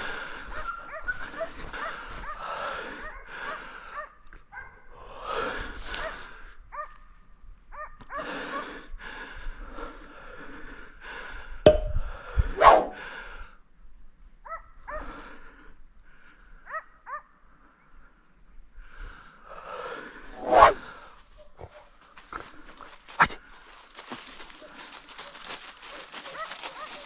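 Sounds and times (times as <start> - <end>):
dogs barking: 0.6 - 2.4, 3.0 - 4.9, 7.7 - 8.6, 16.7 - 17.4, 25.2 - 27.0.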